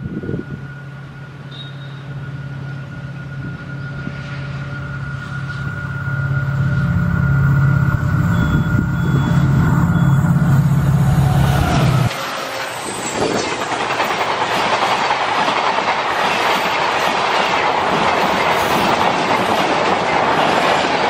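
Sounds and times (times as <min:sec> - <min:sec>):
high whine: 0:00.0 - 0:13.9
diesel locomotive engine drone: 0:00.0 - 0:21.0.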